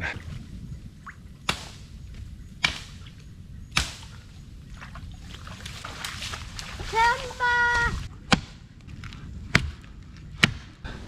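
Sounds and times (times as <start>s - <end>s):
axe chopping tree trunk: 1.5s - 1.8s, 2.6s - 3.0s, 3.7s - 4.1s, 8.3s - 10.8s.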